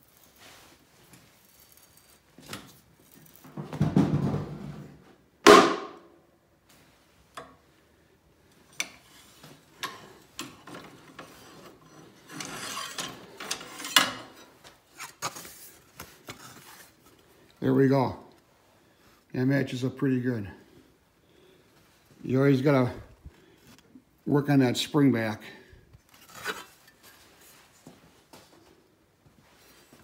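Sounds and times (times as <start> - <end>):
steel parts clicking and scraping: 0.0 - 3.5, 8.5 - 17.2, 26.1 - 27.8
metal bender straining: 8.7 - 15.7.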